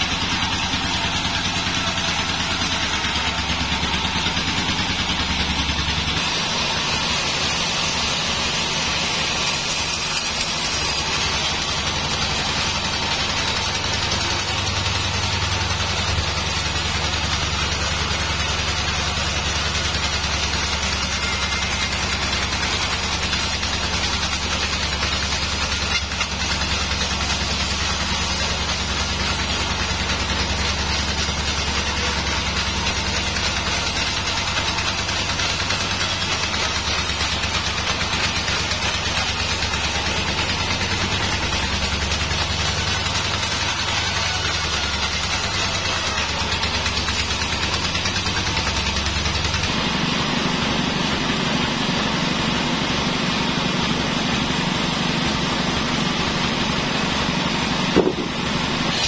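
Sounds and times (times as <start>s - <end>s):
band sawmill drone: 0.0s - 59.0s
short sharp knock: 58.0s - 58.4s.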